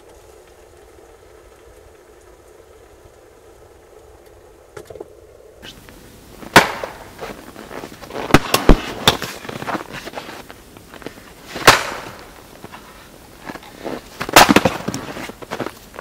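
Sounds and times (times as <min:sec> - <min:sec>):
sharp cracks and knocks: 0:04.2 - 0:16.0.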